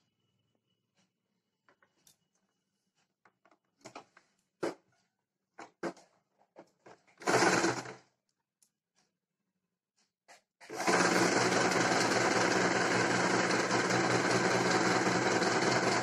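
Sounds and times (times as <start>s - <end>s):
sewing machine stitching: 7.2s - 8.0s, 10.6s - 16.0s.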